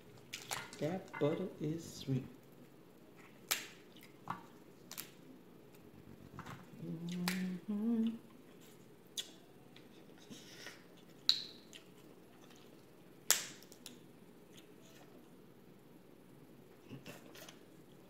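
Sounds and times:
person humming: 6.7 - 8.3.

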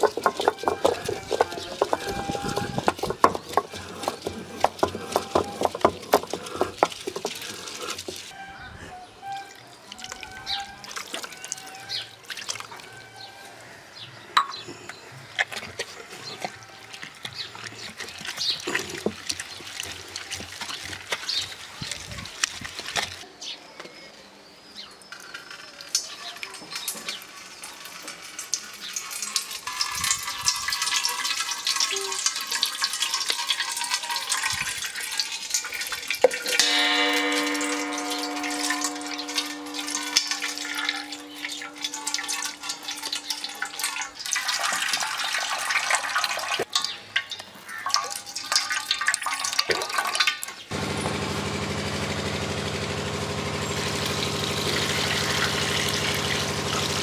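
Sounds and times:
liquid splashing into steel bowl: 28.5 - 50.7
steady tone: 36.6 - 43.6
low hum: 36.8 - 43.7.

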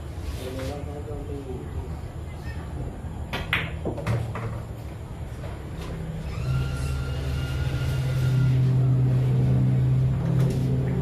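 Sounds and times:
thin whine: 5.8 - 10.8
vehicle engine running: 6.8 - 11.0.

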